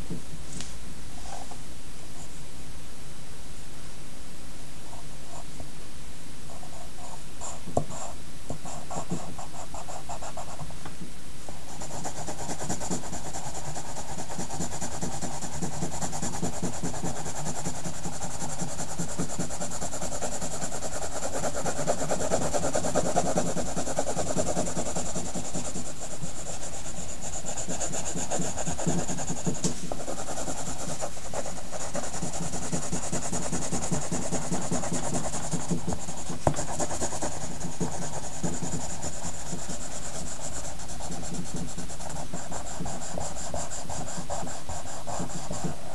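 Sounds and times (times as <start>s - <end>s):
faint high whine: 0.0s - 11.7s
pencil strokes scratching paper: 6.5s - 10.8s, 11.5s - 45.9s.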